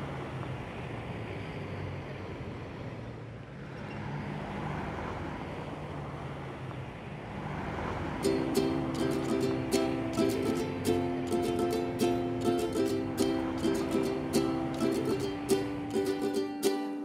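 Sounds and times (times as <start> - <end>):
street traffic rumble: 0.0 - 17.0
plucked ukulele notes: 8.2 - 17.0.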